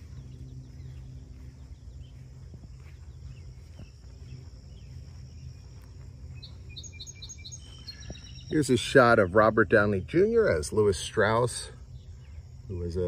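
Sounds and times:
faint bird chirps: 0.0s - 13.0s
steady low hum: 0.0s - 13.0s.

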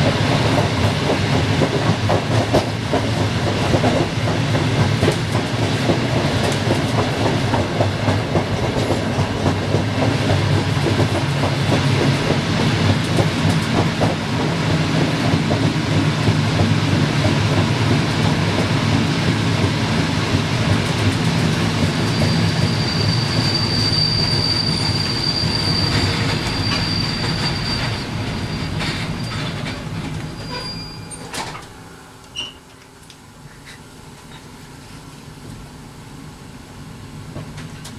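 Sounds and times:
train wheels rolling on rails: 0.0s - 35.7s, 37.2s - 37.9s
high steady squeal: 22.0s - 31.4s.

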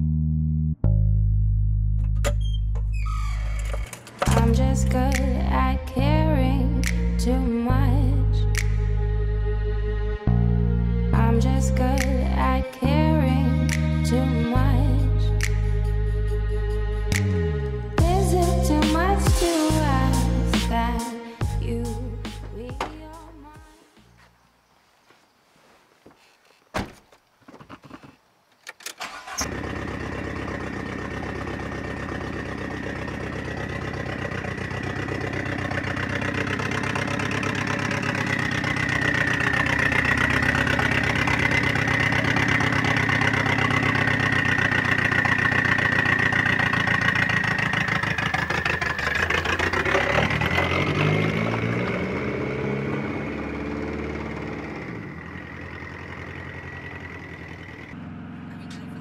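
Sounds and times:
car engine running: 2.0s - 9.2s, 29.0s - 59.0s
engine starter clicks: 3.4s - 5.3s, 27.5s - 31.4s.

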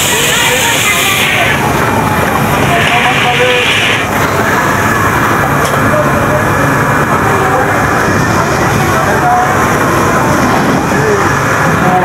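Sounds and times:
voices chattering: 0.0s - 12.0s.

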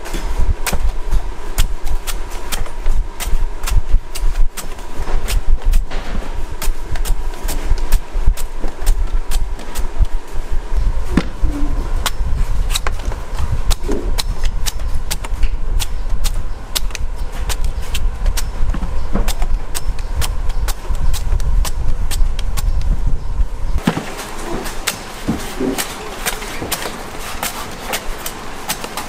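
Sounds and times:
low rumble: 0.0s - 23.8s
knife chopping coconut: 0.6s - 10.2s, 11.2s - 22.7s, 23.8s - 29.0s.

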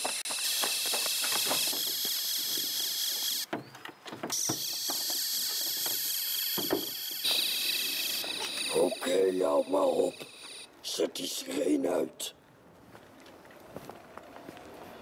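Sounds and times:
steady high-pitched tone: 4.6s - 11.0s.

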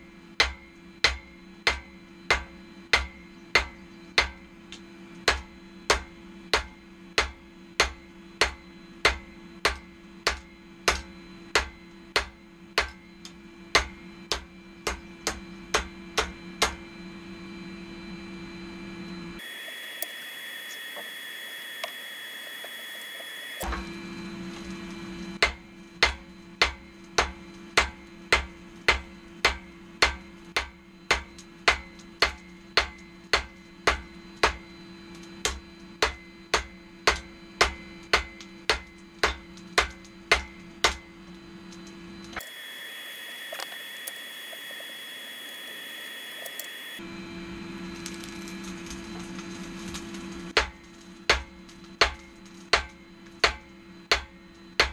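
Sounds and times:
hammer striking steel on anvil: 0.0s - 16.9s, 25.4s - 41.2s, 50.5s - 54.9s
steady hum: 0.0s - 54.9s.

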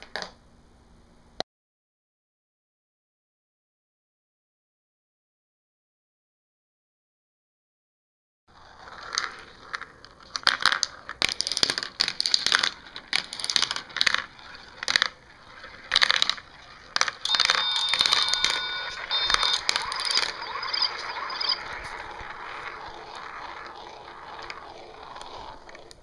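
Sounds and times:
marbles clattering down plastic tracks: 8.5s - 26.0s
marbles whirring in plastic bowl: 8.5s - 26.0s.

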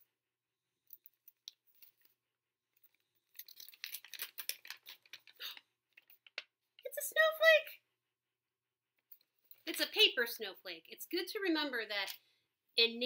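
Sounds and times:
thick paper crinkling: 3.4s - 5.6s.

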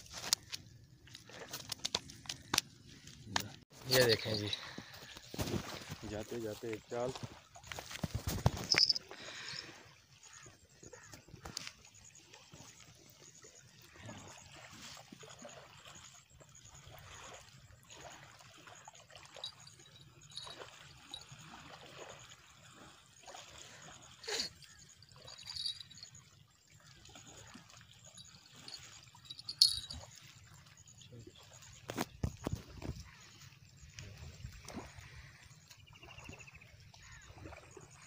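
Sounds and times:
small waves lapping: 0.0s - 38.0s.

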